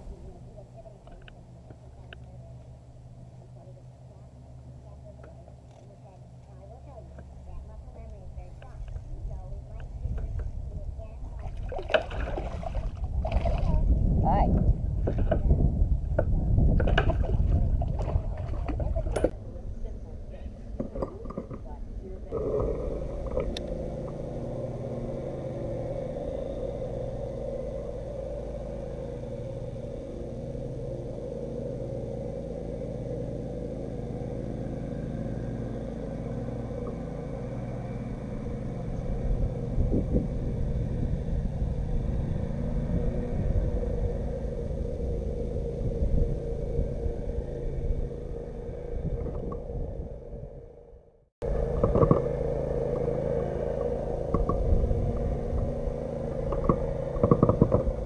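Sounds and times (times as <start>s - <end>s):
constant hum: 0.0s - 58.0s
wind buffeting microphone: 4.9s - 58.0s.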